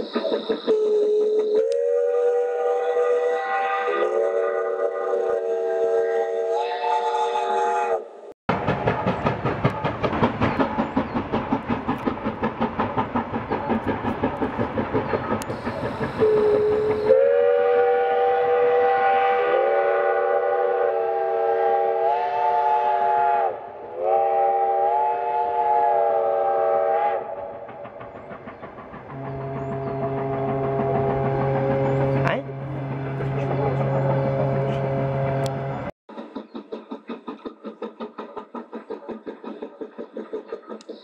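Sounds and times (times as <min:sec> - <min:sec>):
steam locomotive chuffing: 0:00.0 - 0:41.0
train chord whistle: 0:00.3 - 0:08.3, 0:15.6 - 0:27.6, 0:29.1 - 0:35.9.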